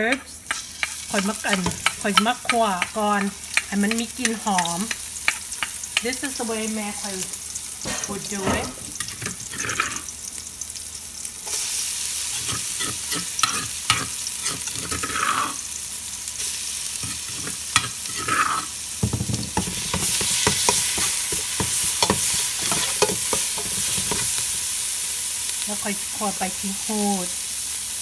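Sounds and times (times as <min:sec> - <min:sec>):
metal utensil scraping a pot: 0:00.0 - 0:02.9, 0:19.5 - 0:24.4
paste sizzling in hot oil: 0:00.0 - 0:28.0.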